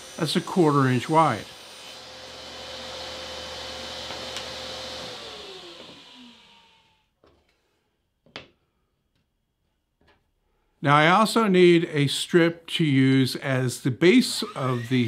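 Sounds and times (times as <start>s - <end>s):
table saw whining: 0.0s - 7.1s, 14.2s - 15.0s.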